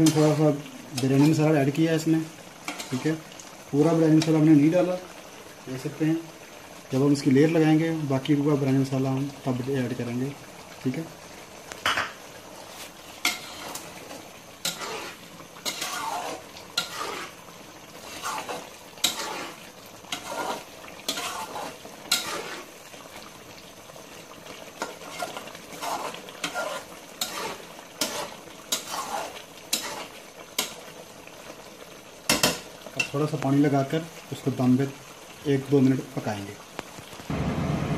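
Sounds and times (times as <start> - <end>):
metal spatula scraping pot: 0.0 - 1.4, 12.7 - 22.7, 24.8 - 30.8
soft sizzle: 0.0 - 37.9.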